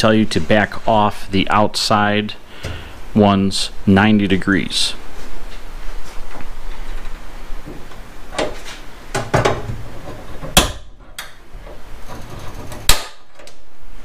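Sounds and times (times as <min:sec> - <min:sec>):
loud snaps: 0:12.8 - 0:13.6.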